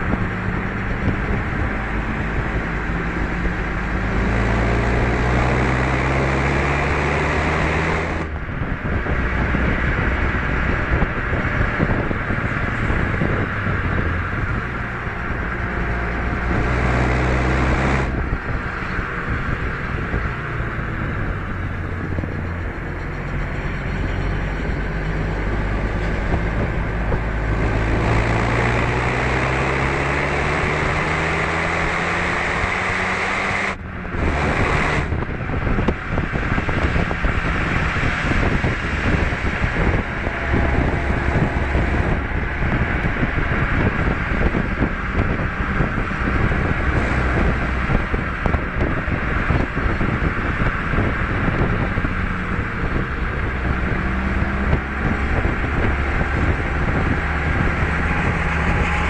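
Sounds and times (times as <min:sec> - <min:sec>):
car engine accelerating hard: 0:00.0 - 0:59.0
road and wind noise: 0:00.0 - 0:59.0.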